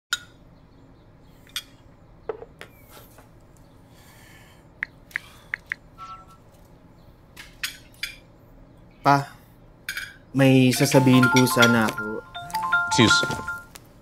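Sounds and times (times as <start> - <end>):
phone message tone: 10.8 - 13.7.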